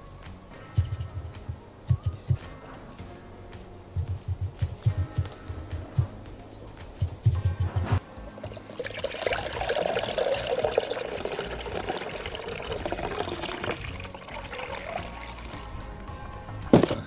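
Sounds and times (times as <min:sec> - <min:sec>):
short low thumps: 0:00.8 - 0:02.9, 0:03.9 - 0:08.6
cream pouring into glass bowl: 0:08.5 - 0:15.7.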